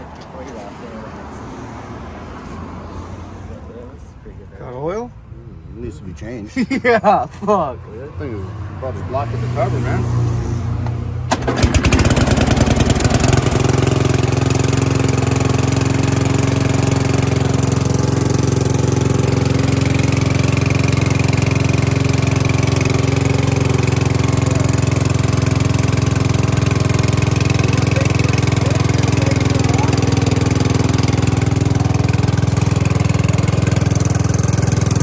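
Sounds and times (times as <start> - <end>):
lawn mower engine running: 11.3 - 35.0.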